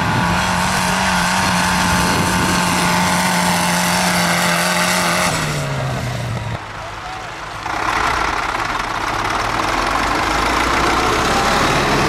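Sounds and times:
tractor diesel engine revving: 0.0s - 12.0s.

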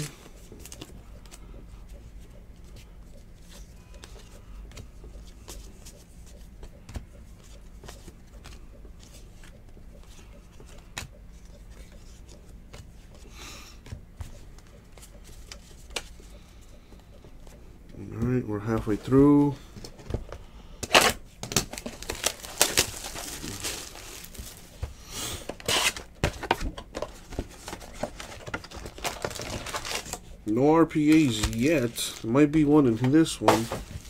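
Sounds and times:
low steady hum: 0.0s - 34.0s
card rustle: 20.9s - 24.8s, 25.4s - 34.0s.

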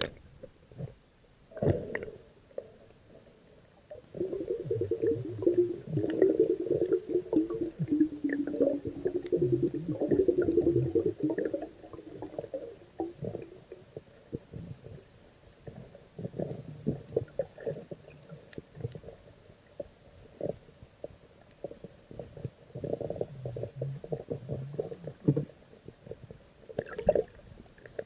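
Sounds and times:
crackling underwater rumble: 0.0s - 28.0s.

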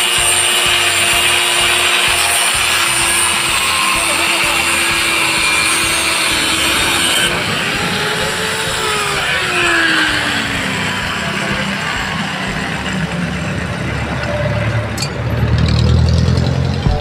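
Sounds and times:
angle grinder grinding metal: 0.0s - 17.0s.

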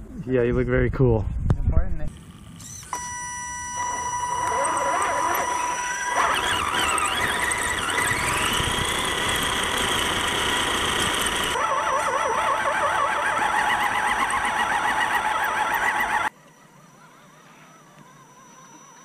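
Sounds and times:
high-pitched electronic whine: 2.1s - 19.0s
fast warbling whine: 2.5s - 16.3s.

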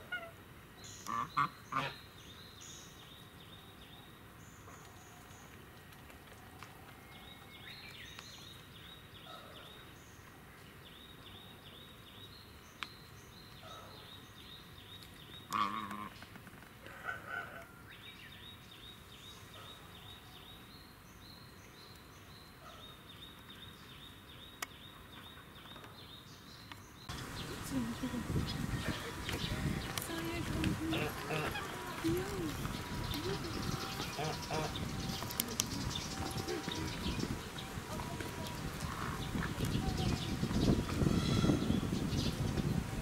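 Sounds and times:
waterfowl calling: 1.0s - 2.0s, 15.5s - 16.2s, 27.1s - 40.2s.

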